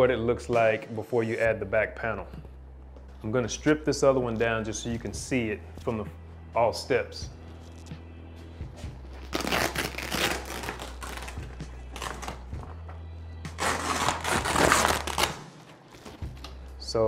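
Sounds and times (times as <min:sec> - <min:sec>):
velcro ripping apart: 0:09.2 - 0:12.5, 0:13.5 - 0:15.5.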